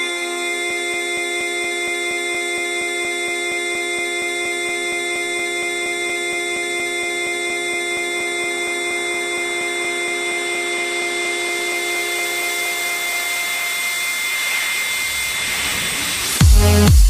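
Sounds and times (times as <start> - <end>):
held synthesizer chord: 0.0 - 15.7
hissing noise sweep: 11.8 - 17.0.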